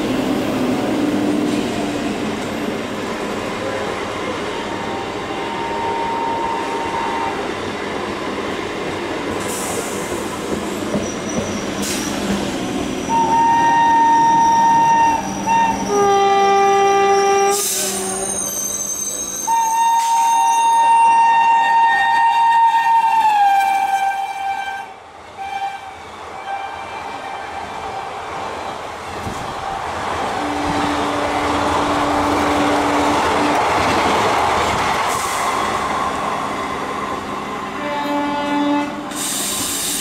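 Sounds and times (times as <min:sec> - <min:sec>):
rumble of passing trains: 0:00.0 - 0:40.0
train coaches rushing past: 0:00.0 - 0:40.0
locomotive air horn blasts: 0:13.1 - 0:18.2, 0:19.5 - 0:27.6, 0:37.8 - 0:39.3.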